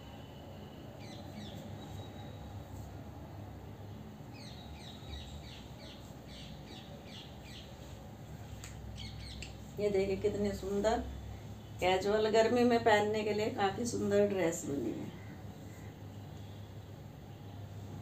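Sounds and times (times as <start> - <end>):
low steady hum: 0.0 - 18.0
birds chirping: 8.9 - 9.6.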